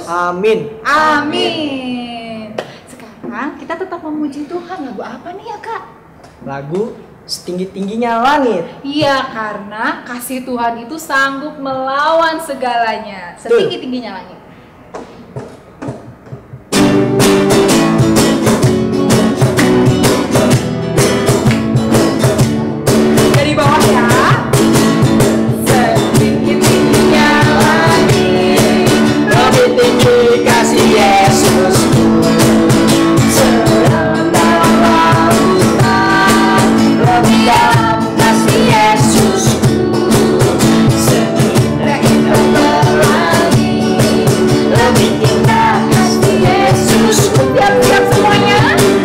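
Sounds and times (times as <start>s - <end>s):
strummed acoustic guitars: 15.2s - 49.0s
group singing praise song: 23.2s - 49.0s.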